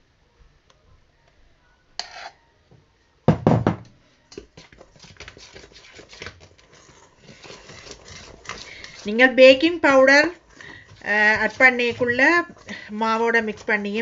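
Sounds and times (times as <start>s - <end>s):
metal spoon scraping bowl: 2.0s - 2.4s, 4.6s - 14.0s.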